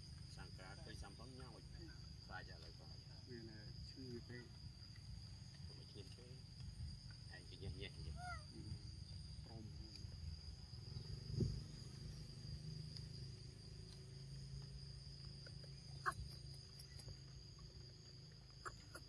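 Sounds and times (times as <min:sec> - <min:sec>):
high-pitched insect drone: 0:00.0 - 0:19.0.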